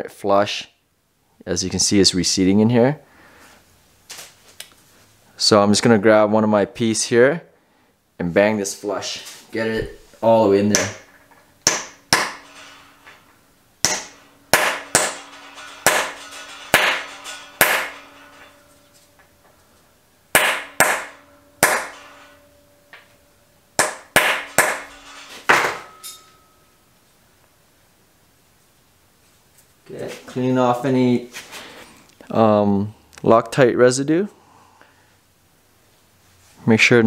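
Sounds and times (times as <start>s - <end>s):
hammer striking steel: 10.6s - 19.5s, 20.3s - 26.7s.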